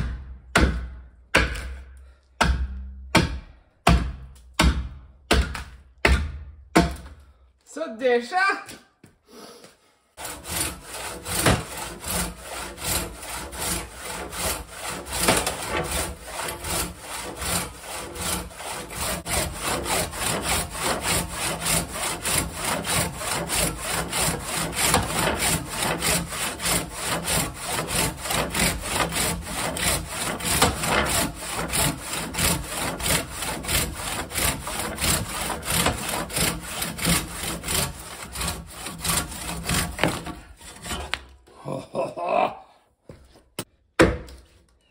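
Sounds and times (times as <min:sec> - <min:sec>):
crosscut saw cutting a log: 0:10.2 - 0:41.3.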